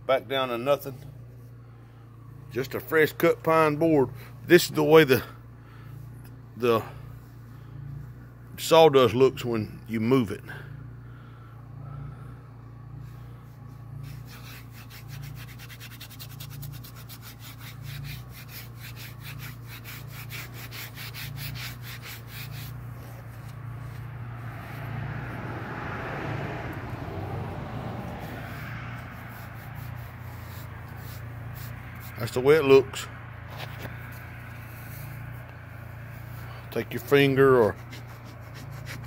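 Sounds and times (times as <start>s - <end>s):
steady low hum: 0.0s - 25.4s
hand rubbing sawdust on board: 2.4s - 5.4s, 13.0s - 25.0s, 27.9s - 39.0s.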